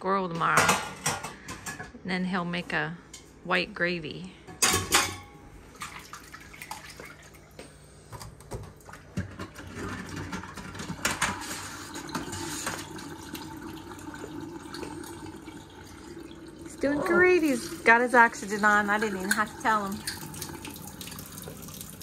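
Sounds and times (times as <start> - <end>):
faucet running into a sink: 9.4 - 22.0.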